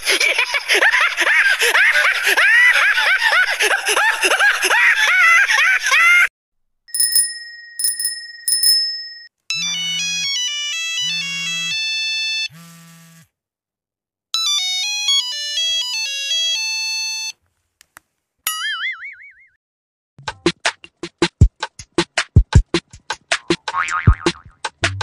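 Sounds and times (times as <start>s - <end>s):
bicycle bell ringing: 6.9s - 9.3s.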